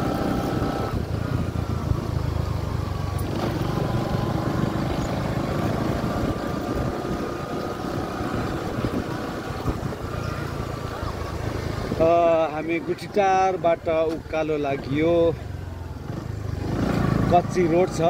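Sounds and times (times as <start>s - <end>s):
motor scooters running: 0.0s - 18.0s
wind on microphone: 4.2s - 10.4s.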